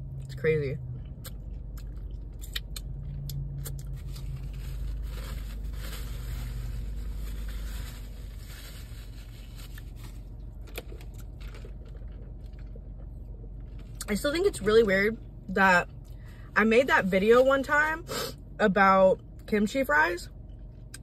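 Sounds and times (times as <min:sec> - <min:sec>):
paper napkin crinkling: 0:03.9 - 0:10.3.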